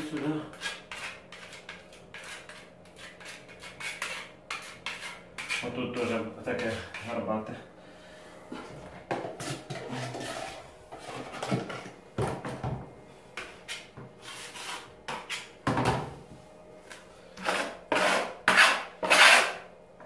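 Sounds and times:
putty knife scraping filler on wall: 0:00.1 - 0:07.1, 0:09.2 - 0:12.0, 0:13.7 - 0:15.5, 0:17.4 - 0:19.7.

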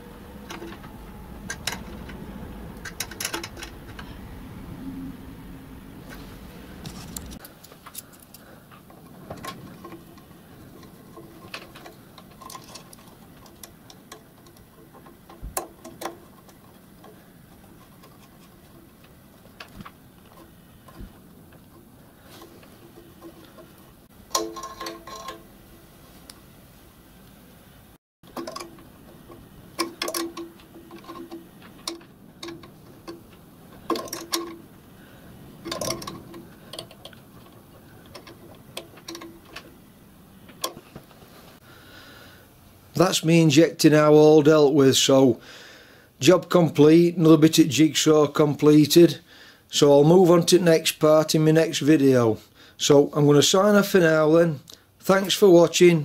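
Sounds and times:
metallic clicks and clinks of spanner: 0:01.5 - 0:02.2, 0:02.8 - 0:04.1, 0:06.8 - 0:18.9, 0:21.7 - 0:25.5, 0:28.3 - 0:34.7, 0:35.6 - 0:39.7.

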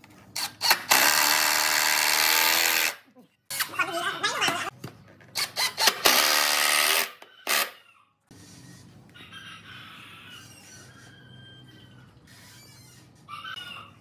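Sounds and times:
cordless drill drilling into wood: 0:00.4 - 0:03.0, 0:05.4 - 0:07.7
faint rooster crowing: 0:07.2 - 0:14.0.

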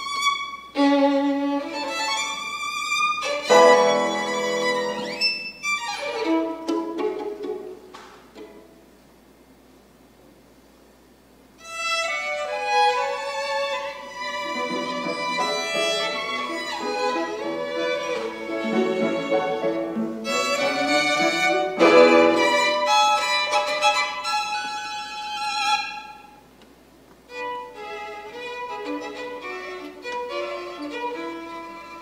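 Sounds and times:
violin played with a bow: 0:00.0 - 0:07.7, 0:11.6 - 0:26.4, 0:27.3 - 0:32.0
musical accompaniment: 0:03.2 - 0:07.6, 0:12.7 - 0:23.9.

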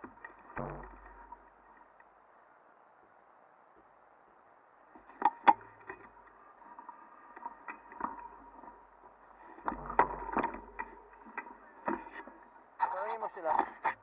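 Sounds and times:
bike knocking and rattling: 0:00.0 - 0:01.9, 0:05.0 - 0:12.8
low rumbling on microphone: 0:00.0 - 0:02.3, 0:05.0 - 0:12.8.

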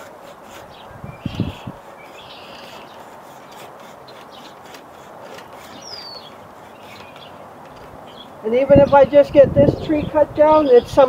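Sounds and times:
hand saw cutting wood: 0:00.0 - 0:08.0
birds chirping: 0:00.4 - 0:11.0.

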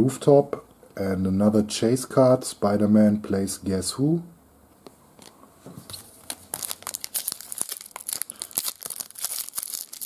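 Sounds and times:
foil wrapper crinkling and tearing: 0:06.2 - 0:10.0.

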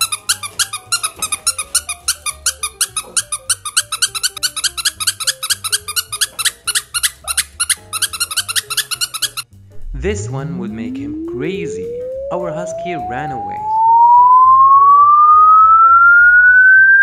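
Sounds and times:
high-pitched squeaks: 0:00.0 - 0:09.5
background music with low beat: 0:00.0 - 0:16.1.

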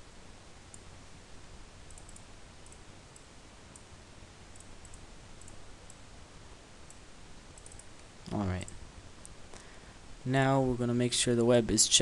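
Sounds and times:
microphone hiss: 0:00.0 - 0:12.0
computer mouse clicks: 0:00.7 - 0:00.9, 0:01.9 - 0:03.9, 0:04.5 - 0:06.0, 0:07.6 - 0:09.4.

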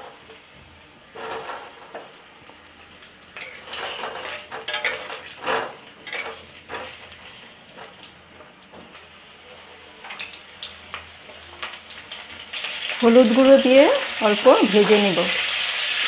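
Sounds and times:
potatoes frying in hot oil: 0:00.0 - 0:16.0
metal spatula scraping a wok: 0:01.1 - 0:02.2, 0:03.4 - 0:07.5.

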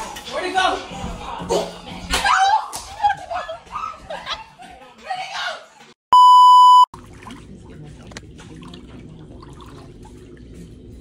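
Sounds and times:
electronic test-tone bleep: 0:06.1 - 0:06.9.

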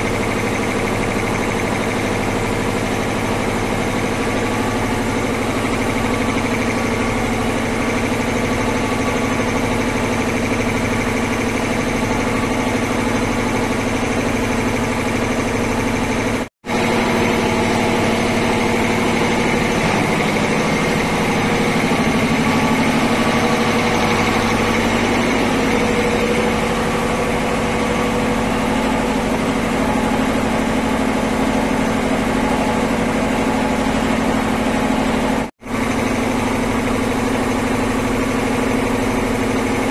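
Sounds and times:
air compressor running: 0:00.0 - 0:39.9.

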